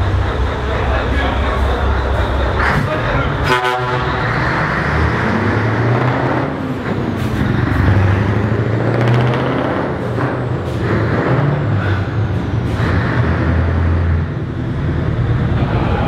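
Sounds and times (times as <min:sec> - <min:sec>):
truck engine in tunnel: 0:00.0 - 0:16.0.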